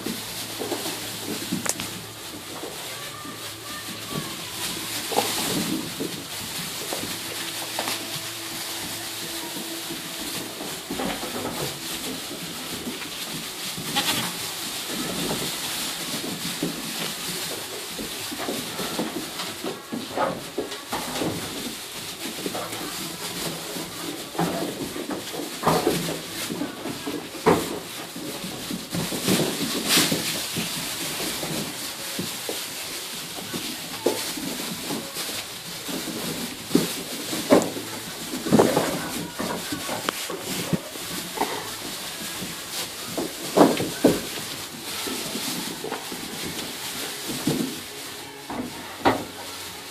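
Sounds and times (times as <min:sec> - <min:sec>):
hooves pattering in straw: 0:00.0 - 0:49.9
goat kids bleating: 0:00.6 - 0:17.6, 0:34.1 - 0:44.3.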